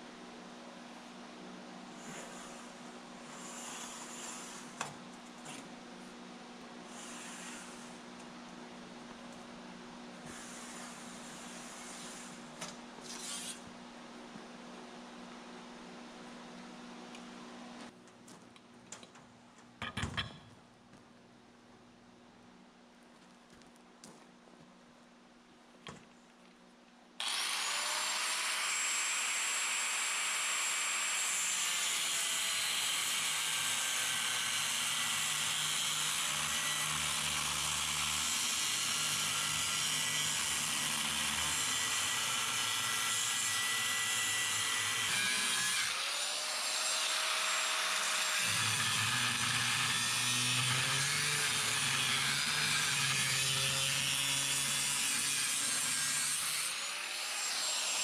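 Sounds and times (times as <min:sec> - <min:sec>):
angle grinder whining: 0:27.2 - 0:58.0.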